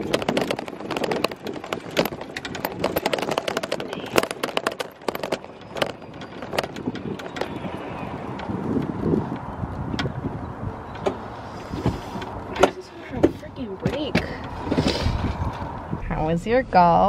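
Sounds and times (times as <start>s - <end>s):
golf cart rattling and clicking: 0.0s - 16.0s
steady rushing noise: 0.0s - 17.0s.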